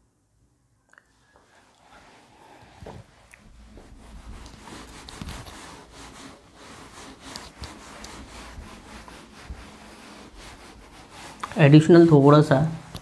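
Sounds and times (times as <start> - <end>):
pen scratching while handwriting: 4.2 - 11.8.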